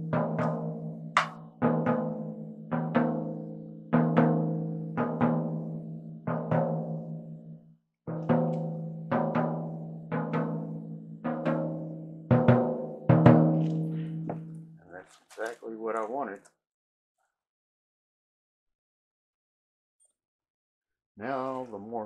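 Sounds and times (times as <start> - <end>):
floor tom struck with drumstick: 0.0 - 3.4, 11.3 - 14.5.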